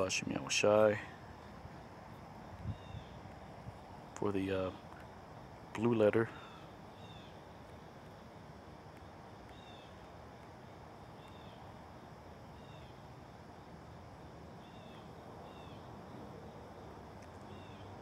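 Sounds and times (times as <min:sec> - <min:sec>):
steady low hum: 0:00.0 - 0:18.0
bird chirping: 0:02.6 - 0:03.2, 0:06.4 - 0:07.4, 0:09.5 - 0:10.0, 0:11.2 - 0:11.7, 0:14.6 - 0:15.9, 0:17.4 - 0:18.0.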